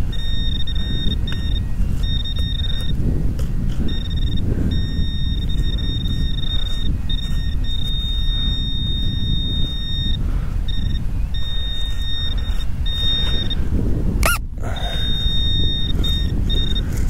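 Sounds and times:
high-pitched detector tone: 0.0s - 3.1s, 3.8s - 17.0s
wind rumble on microphone: 0.0s - 17.0s.

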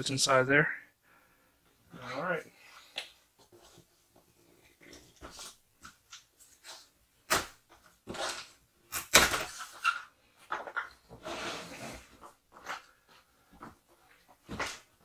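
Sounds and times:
straps scraping on cardboard: 11.1s - 12.8s.

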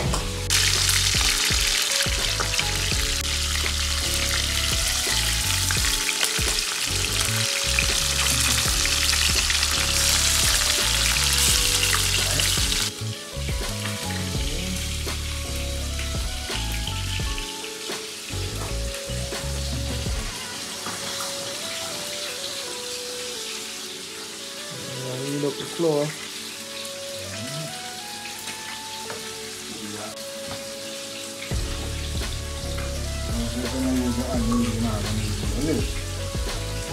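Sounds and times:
background music with bass beat: 0.0s - 20.4s, 31.5s - 36.9s
fish sizzling in hot oil: 0.0s - 36.9s.

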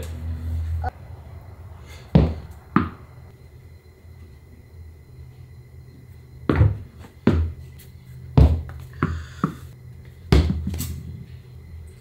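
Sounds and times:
tennis balls thudding on mat: 2.1s - 3.1s, 6.5s - 7.6s, 8.4s - 9.6s, 10.3s - 10.9s.

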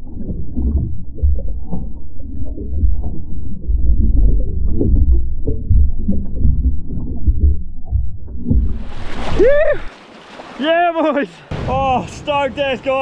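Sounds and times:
dull underwater knocks: 0.0s - 10.6s
underwater churning and sloshing: 0.0s - 11.6s
man whooping: 9.4s - 9.9s.

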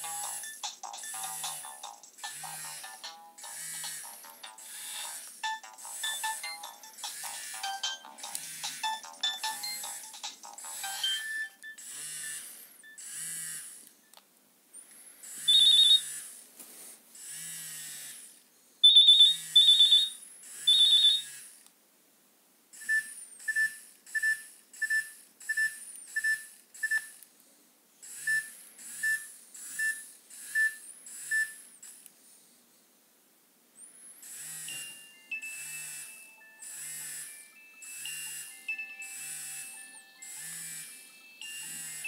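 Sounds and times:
phone ringtone tunes: 0.0s - 13.2s, 34.5s - 42.0s
phone beeps: 4.2s - 11.9s, 15.5s - 16.0s, 20.7s - 21.2s, 37.6s - 41.8s.

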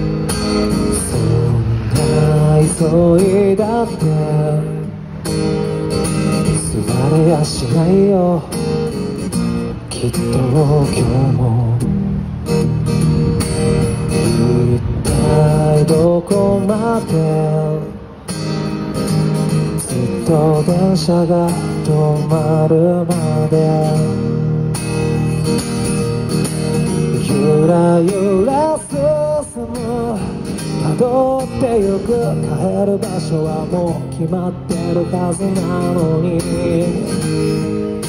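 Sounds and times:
strummed acoustic guitar: 0.0s - 38.0s
man singing pop ballad: 0.7s - 4.9s, 6.2s - 9.0s, 9.9s - 12.0s, 14.1s - 18.1s, 19.8s - 24.4s, 27.0s - 37.7s.

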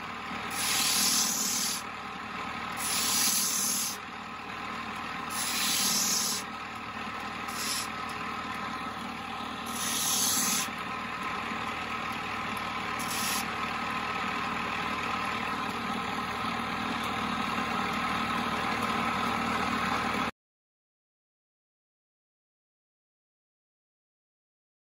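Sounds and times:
grinding wheel humming: 0.0s - 20.3s
crystal scraping on wheel: 0.5s - 1.8s, 2.8s - 4.0s, 5.3s - 6.4s, 7.5s - 8.0s, 9.6s - 10.7s, 13.0s - 13.5s.

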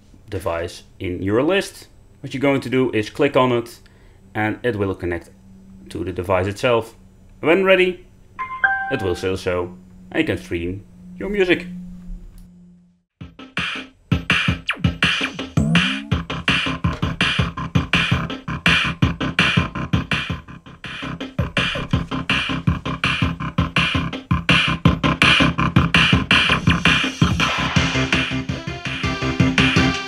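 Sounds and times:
electronic music through small speakers: 13.2s - 30.0s.

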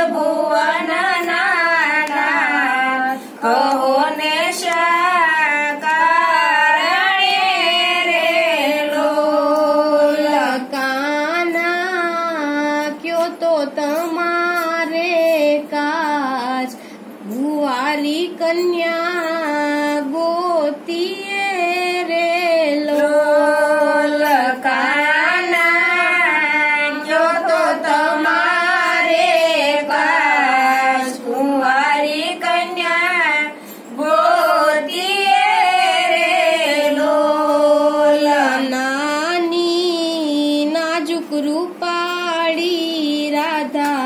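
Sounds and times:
women singing devotional song: 0.0s - 44.0s.

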